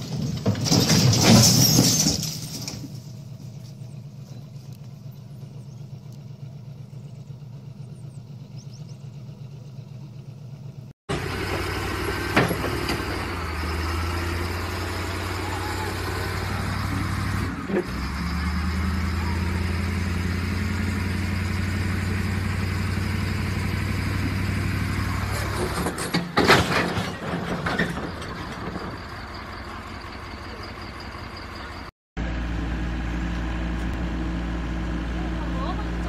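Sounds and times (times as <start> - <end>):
metallic clanks and crashes: 0.0 - 3.2, 25.3 - 29.4
heavy machine diesel engine: 0.0 - 36.0
excavator engine running: 2.6 - 36.0.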